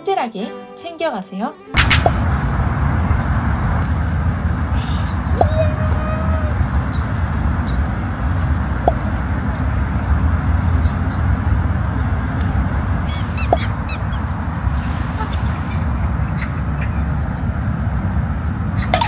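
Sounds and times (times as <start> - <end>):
wind buffeting microphone: 1.8 - 19.0
bird chirps: 4.6 - 12.1, 13.0 - 17.1.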